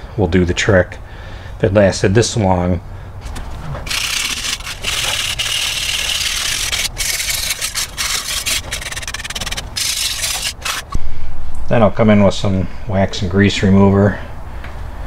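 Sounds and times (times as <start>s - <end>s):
wire brush scrubbing metal: 3.8s - 11.0s.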